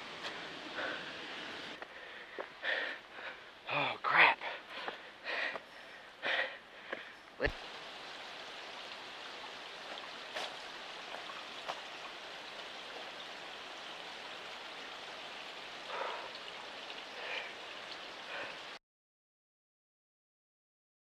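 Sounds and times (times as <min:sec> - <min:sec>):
water trickling down rock: 0:06.2 - 0:18.8.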